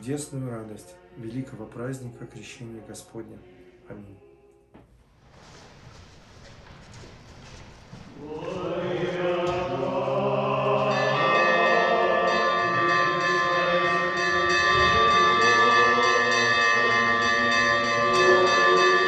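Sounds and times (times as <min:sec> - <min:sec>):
choir chanting: 0:00.0 - 0:04.6, 0:08.0 - 0:19.0
church bells ringing: 0:08.8 - 0:19.0.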